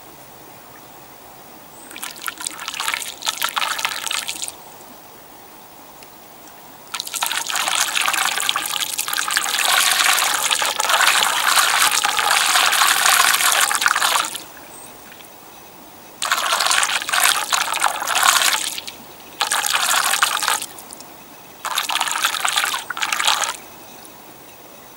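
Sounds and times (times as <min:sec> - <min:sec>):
floodwater rushing and swirling: 0:01.9 - 0:04.6, 0:06.9 - 0:14.8, 0:16.2 - 0:21.0, 0:21.6 - 0:23.6.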